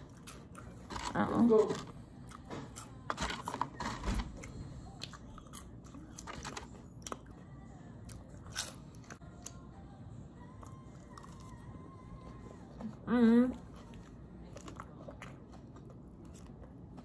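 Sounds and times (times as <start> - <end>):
person chewing crunchy food: 0.0 - 9.6, 13.6 - 17.0.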